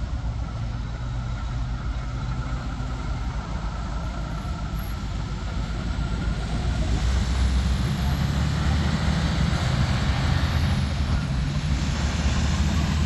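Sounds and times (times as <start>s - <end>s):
road noise: 0.0s - 13.0s
truck diesel engine running: 0.0s - 13.0s.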